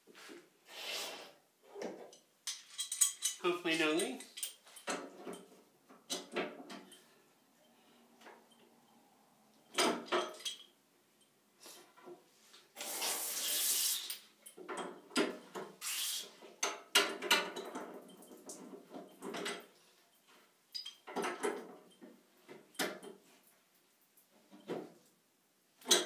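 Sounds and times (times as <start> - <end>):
short hissing rushes: 0.6 - 1.4, 12.8 - 14.2, 15.8 - 16.3
pliers clinking on metal fittings: 2.5 - 5.4, 9.7 - 11.3, 20.7 - 21.2.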